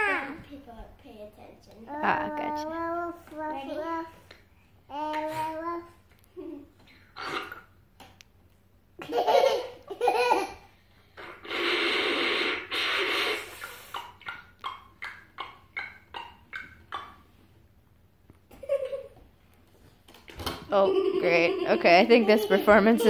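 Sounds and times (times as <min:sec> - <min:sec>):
child laughing: 0:09.0 - 0:10.6, 0:18.5 - 0:19.2, 0:20.7 - 0:23.0.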